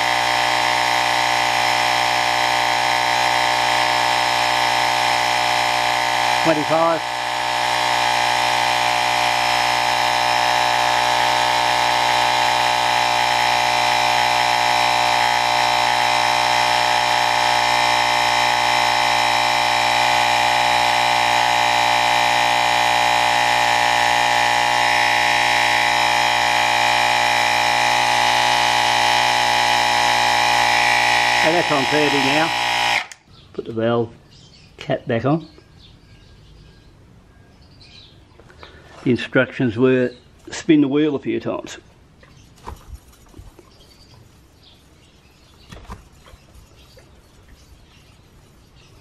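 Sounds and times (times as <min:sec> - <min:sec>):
air compressor humming: 0:00.0 - 0:33.3, 0:38.4 - 0:39.0.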